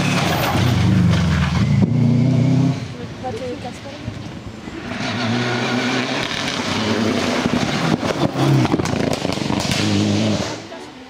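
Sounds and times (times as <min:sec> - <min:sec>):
rally car engine passing by: 0:04.7 - 0:10.9
sharp exhaust cracks: 0:06.2 - 0:10.6.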